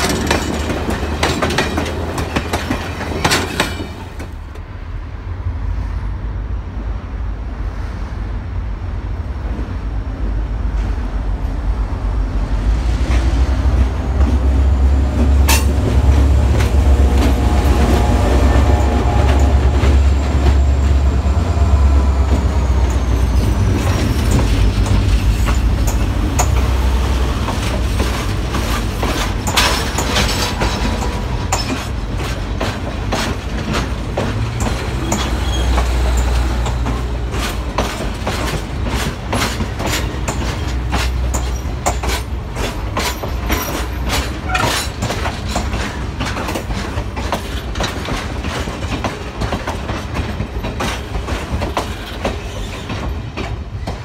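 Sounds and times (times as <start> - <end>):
train wheels clicking on rails: 0.0 - 4.7, 9.4 - 54.0
locomotive engine rumbling: 0.0 - 7.6, 8.7 - 54.0
high squeal: 35.0 - 35.9.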